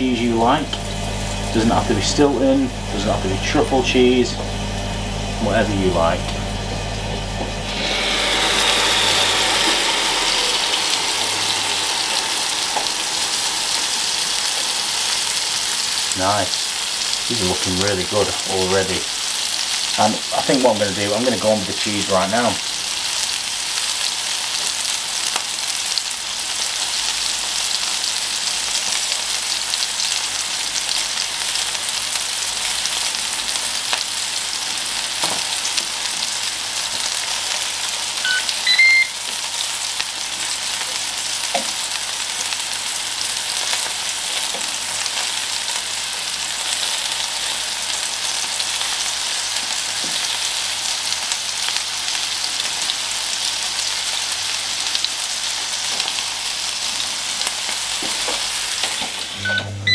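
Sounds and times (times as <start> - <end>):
mushrooms sizzling on grill plate: 0.2 - 59.9
electronic beeps: 38.3 - 39.2.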